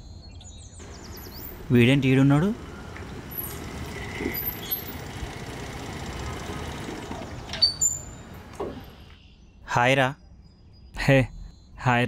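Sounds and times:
motor scooter running: 0.8 - 9.0
short high squeak: 7.5 - 9.0.

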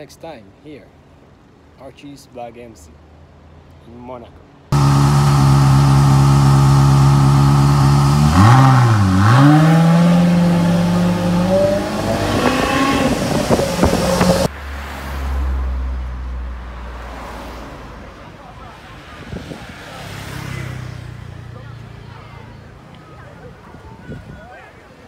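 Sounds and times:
exhaust crackles: 4.7 - 14.5
sports car exhaust droning: 4.7 - 14.5.

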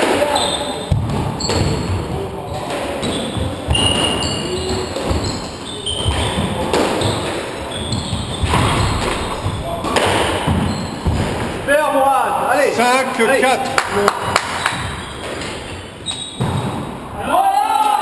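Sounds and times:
squash ball smacking: 0.0 - 5.3, 5.9 - 11.7
shoe squeaks: 0.2 - 11.4, 14.2 - 16.9.

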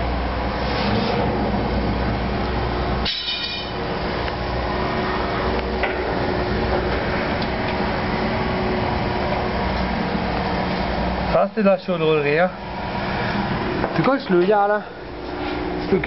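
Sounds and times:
machinery drone: 0.0 - 16.0
short high-pitched ring: 3.0 - 3.8.

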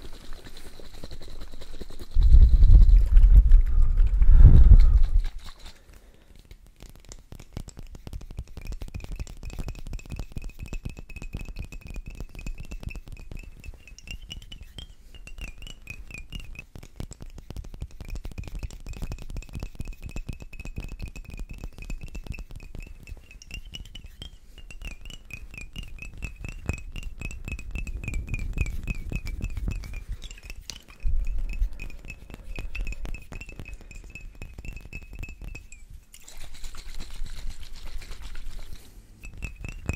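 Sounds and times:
fingers tapping glass bottles: 6.4 - 39.9
high ringing tone: 12.3 - 16.6, 21.7 - 36.0.

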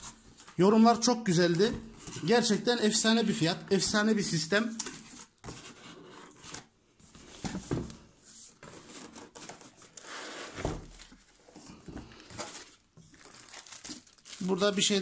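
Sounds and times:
cardboard box scraping and sliding: 9.9 - 10.8.

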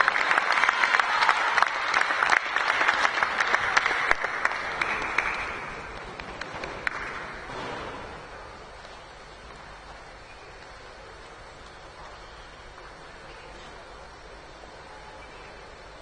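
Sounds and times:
audience applause: 0.0 - 8.3.

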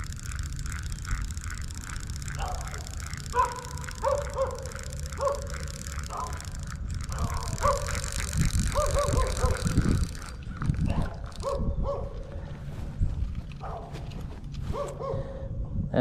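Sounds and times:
dog barking: 3.3 - 5.5, 7.2 - 8.0, 11.0 - 12.2, 13.6 - 13.9, 14.7 - 15.5
wind rumbling on microphone: 6.0 - 16.0.

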